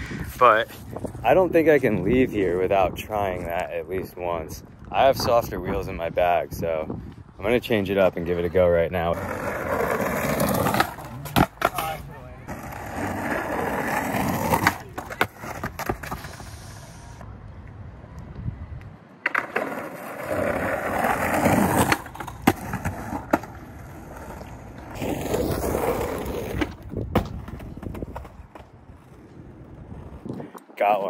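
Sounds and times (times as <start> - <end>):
skateboard rolling on asphalt: 7.4 - 30.9
skateboard clacks: 9.2 - 16.5, 19.2 - 25.0.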